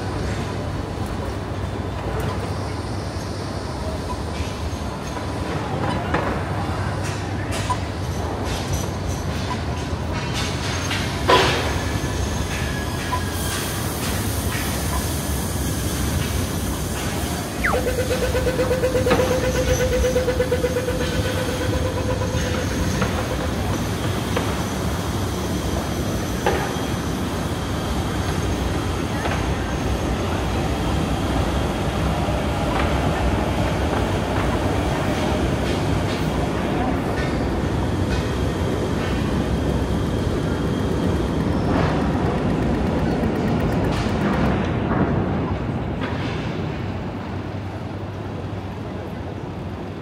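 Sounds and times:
train rumbling: 0.0s - 50.0s
wheels squealing: 14.9s - 25.8s.

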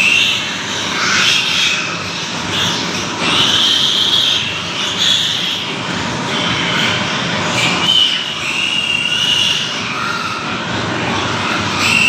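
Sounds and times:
loud steady noise: 0.0s - 12.0s
piglets squealing: 0.0s - 12.0s.

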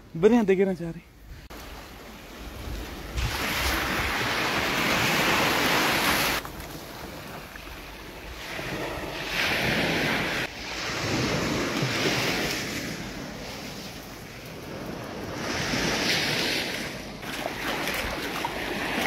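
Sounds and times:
surf washing on beach: 1.5s - 19.0s
wind buffeting microphone: 2.2s - 19.0s.

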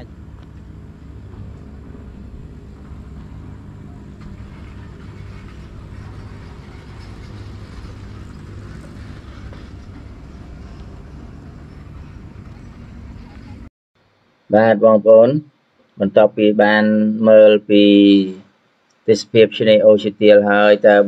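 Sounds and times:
low outdoor rumble: 0.0s - 15.4s
faint hum: 0.0s - 21.0s.

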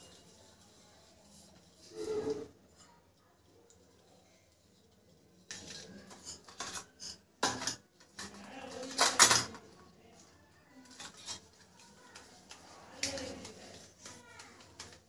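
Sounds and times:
steel plates and spoon clinking: 5.4s - 9.6s.

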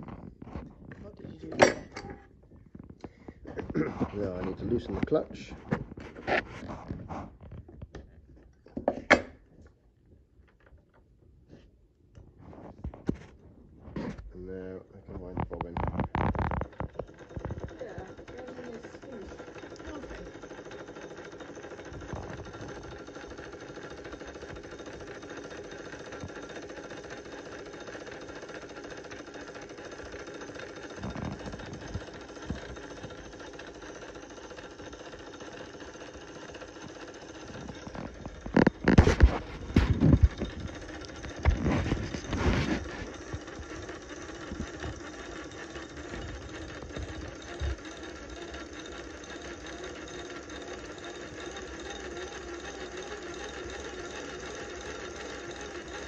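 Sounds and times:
sewing machine whirring: 0.0s - 9.7s, 12.4s - 56.0s
mechanical knocking: 15.2s - 56.0s.

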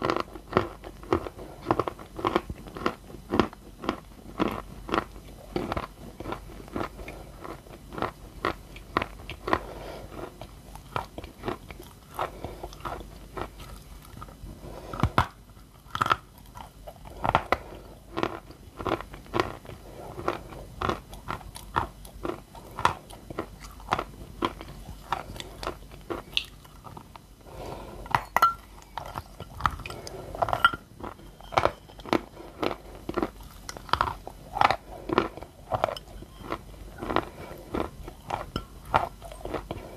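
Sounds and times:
soft wet chewing: 0.0s - 39.9s.

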